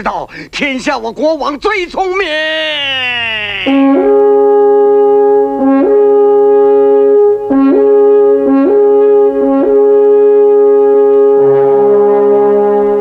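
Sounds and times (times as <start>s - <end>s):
brass fanfare: 3.6s - 13.0s.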